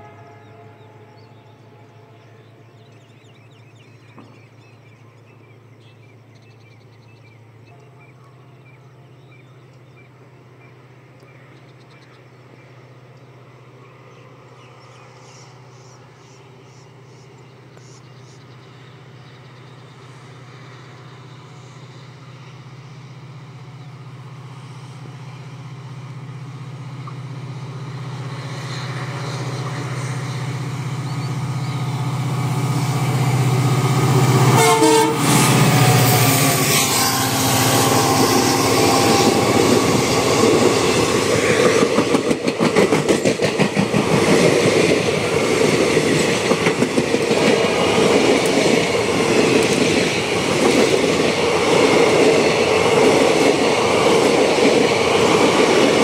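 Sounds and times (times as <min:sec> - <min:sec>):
diesel locomotive engine drone: 0:00.0 - 0:56.0
train wheels clattering over rail joints: 0:39.2 - 0:56.0.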